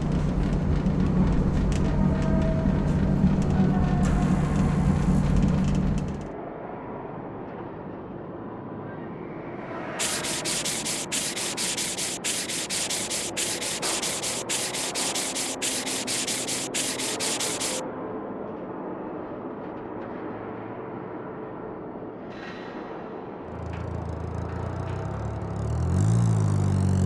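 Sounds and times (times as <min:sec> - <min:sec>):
cartoon rasping rubbing strokes: 0:10.0 - 0:17.8.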